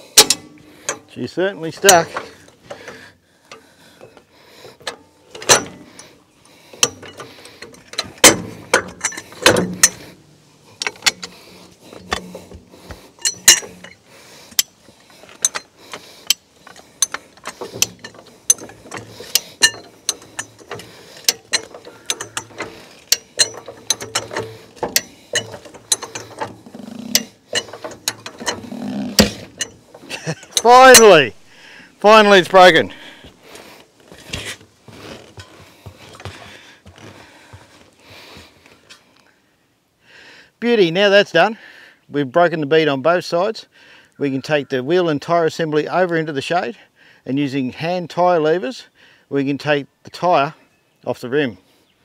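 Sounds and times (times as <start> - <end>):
jack clicking metal clicks: 0.0 - 1.1, 4.8 - 6.1, 10.8 - 12.6, 13.2 - 31.2.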